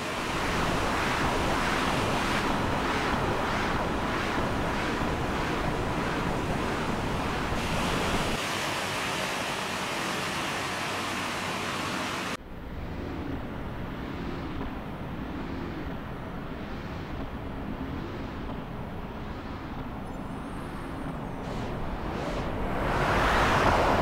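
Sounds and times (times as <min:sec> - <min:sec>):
low rumble: 0:20.2 - 0:24.0.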